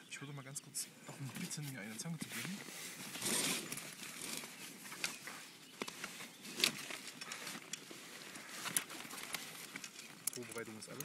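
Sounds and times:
handling rustles and knocks: 1.1 - 11.0.

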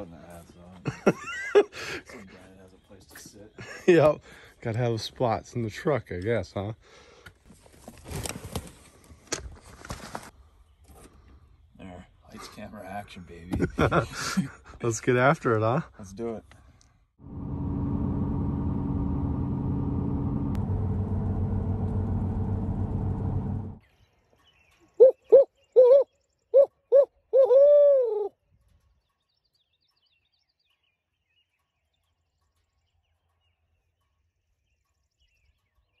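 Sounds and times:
pickup truck engine humming: 17.2 - 23.8
owl hooting: 25.0 - 28.4.

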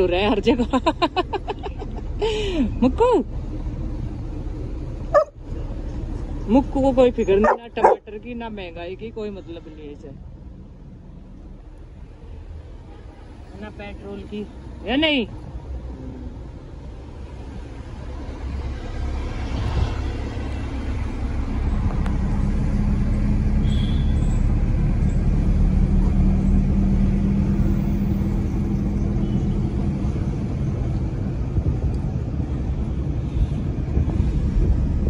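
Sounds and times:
road rumble: 0.0 - 35.0
wind rushing past car: 17.0 - 23.5, 24.6 - 35.0.

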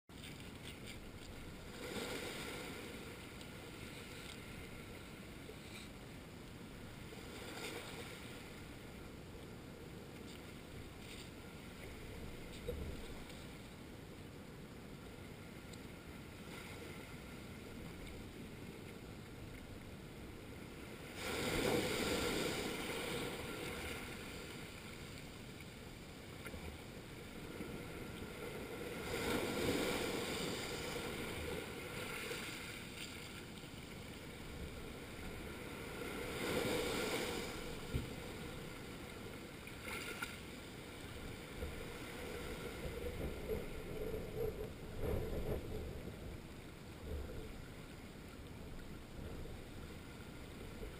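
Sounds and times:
waves breaking on rocky shore: 1.4 - 5.4, 20.7 - 24.9, 27.2 - 33.5, 34.2 - 40.2.

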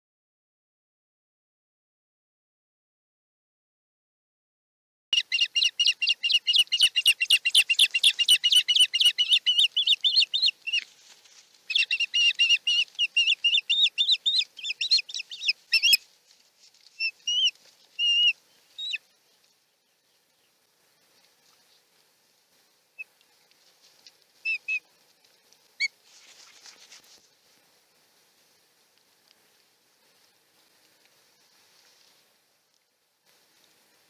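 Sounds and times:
ospreys calling: 5.2 - 10.8, 11.7 - 16.0.

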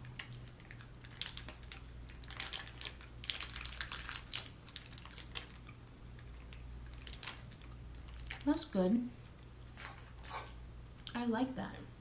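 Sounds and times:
pastry and plastic tray crunching: 0.0 - 8.5.

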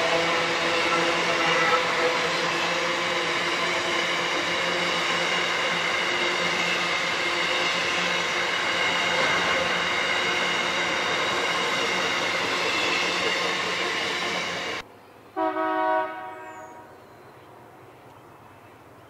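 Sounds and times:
train wheels on rails: 0.0 - 14.9.

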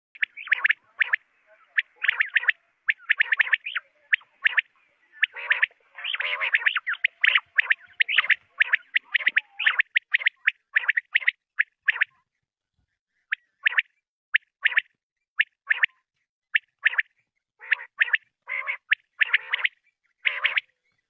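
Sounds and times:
quails calling: 0.2 - 12.2, 13.1 - 16.0, 16.6 - 21.0.

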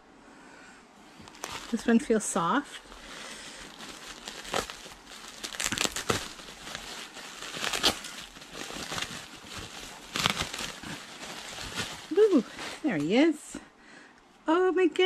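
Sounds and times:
packaging crinkling: 1.2 - 13.1.

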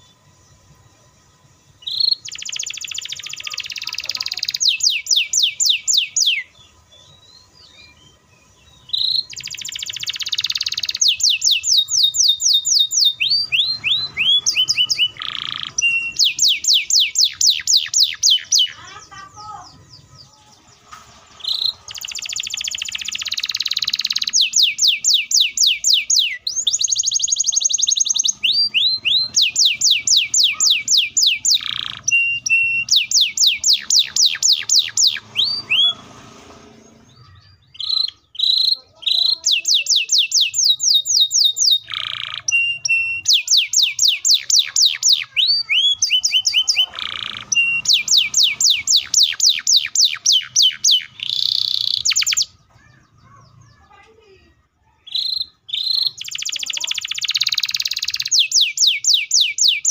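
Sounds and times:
canary singing: 0.0 - 59.9.

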